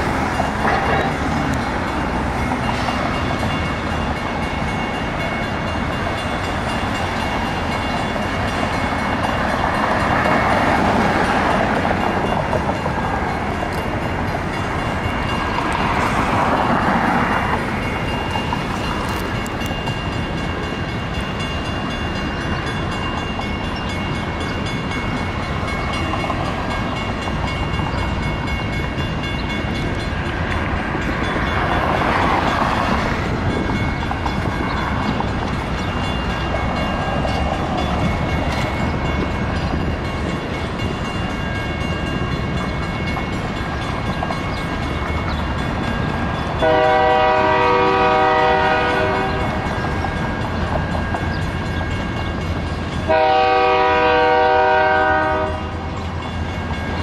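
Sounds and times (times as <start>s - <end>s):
train wheels rolling on rails: 0.0s - 57.0s
train air horn blast: 46.6s - 49.6s, 53.1s - 55.8s.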